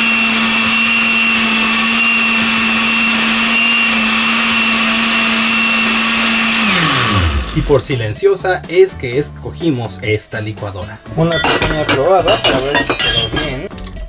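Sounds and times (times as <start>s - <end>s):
blender running with high whine: 0.0s - 7.7s.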